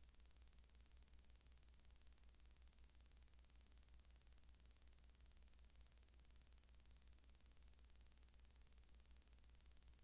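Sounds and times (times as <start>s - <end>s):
faint steady hiss: 0.0s - 10.0s.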